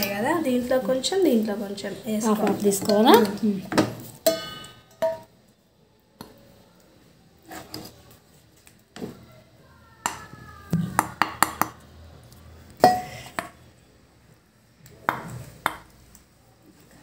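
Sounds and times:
ringing metallic clink: 0:04.3 - 0:05.2.

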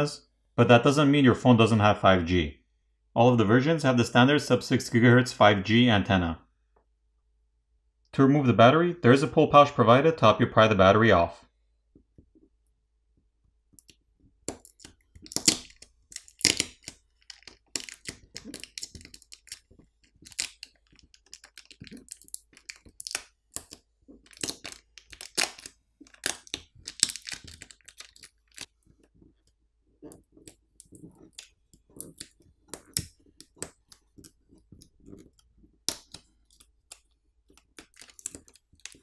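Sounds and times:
adhesive crackling and tearing: 0:14.5 - 0:29.2, 0:30.0 - 0:39.0.

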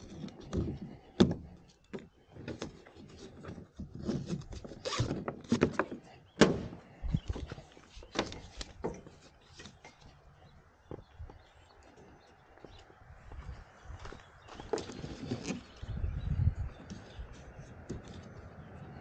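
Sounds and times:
webbing strap sliding: 0:02.4 - 0:05.9, 0:14.8 - 0:15.8.

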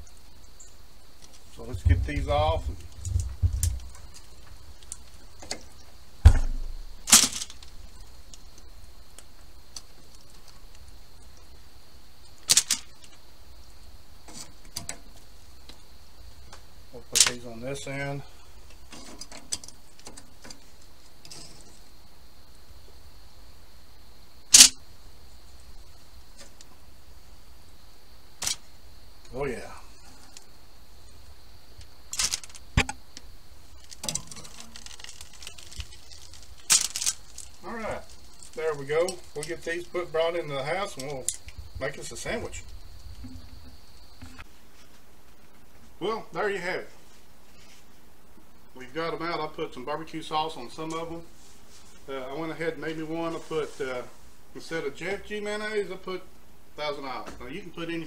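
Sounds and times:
faint high-pitched whine: 0:00.0 - 0:58.0
sharp thump: 0:06.2 - 0:07.4, 0:32.8 - 0:33.0
metal tongs scraping wire grate: 0:18.9 - 0:20.6, 0:21.2 - 0:21.8, 0:33.9 - 0:37.5.

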